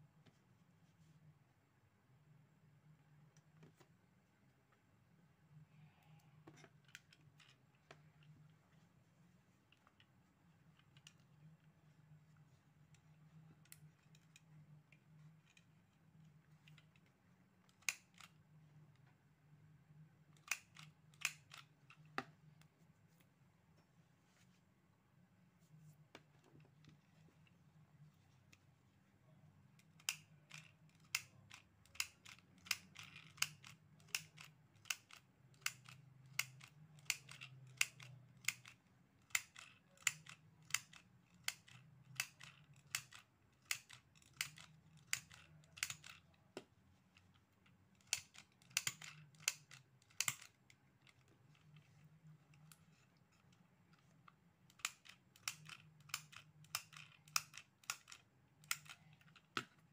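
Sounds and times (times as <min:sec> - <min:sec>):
mini sewing machine clicking: 0:29.8 - 0:46.4, 0:47.9 - 0:52.1, 0:54.7 - 0:59.5.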